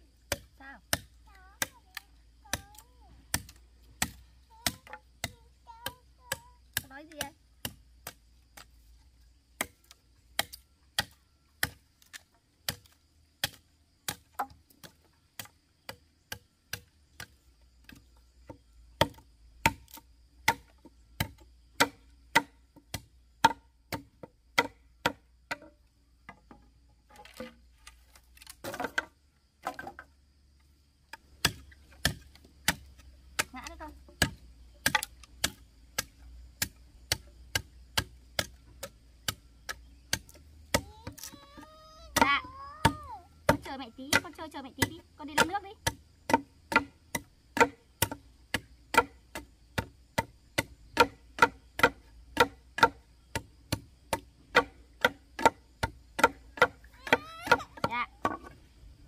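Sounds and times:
sharp chopping strikes: 2.6s - 8.7s, 19.0s - 25.6s, 31.4s - 33.5s, 42.2s - 53.0s.

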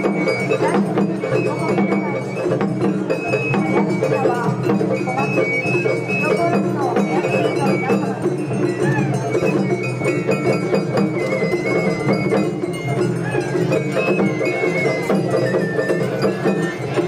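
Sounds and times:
taiko drums: 0.0s - 17.0s
bamboo flute: 8.7s - 17.0s.

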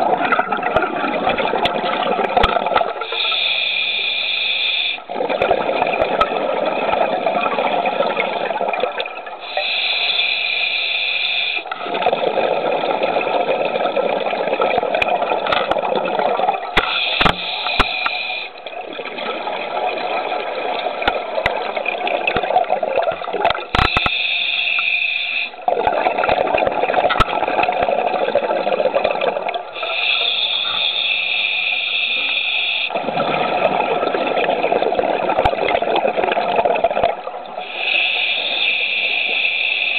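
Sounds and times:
exhaled air bubbling: 0.0s - 39.9s
regulator inhalation hiss: 3.1s - 5.1s, 9.4s - 11.8s, 16.8s - 18.6s, 23.8s - 25.6s, 29.8s - 33.0s, 37.6s - 39.9s.

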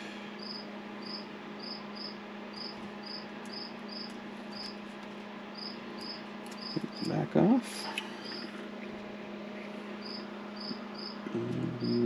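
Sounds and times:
steady low hum: 0.0s - 12.0s
cricket chirping: 0.4s - 4.8s, 5.5s - 7.1s, 10.0s - 11.2s.

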